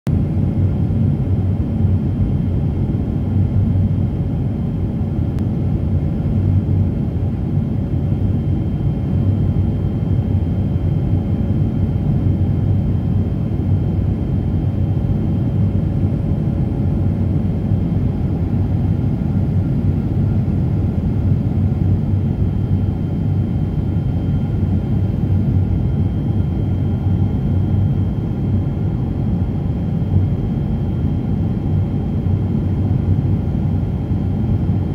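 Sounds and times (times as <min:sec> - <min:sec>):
airliner cabin low rumble: 0:00.1 - 0:34.9.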